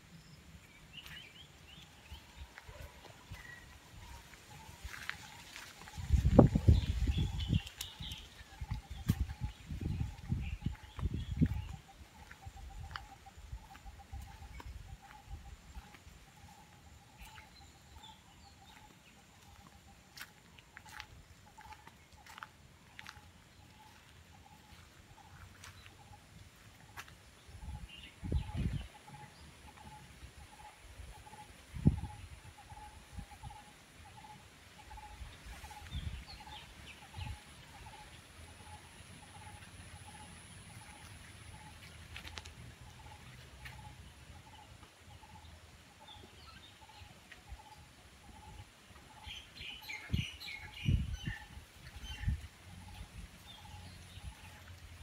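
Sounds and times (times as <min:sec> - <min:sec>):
footsteps on muddy path: 0:00.7 - 0:27.8, 0:35.5 - 0:45.3.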